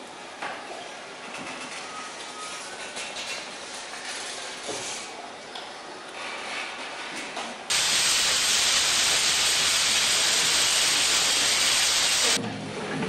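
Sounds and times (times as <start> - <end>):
mechanical workshop noise: 0.0 - 5.3, 6.2 - 13.0
loud even hiss: 7.7 - 12.4.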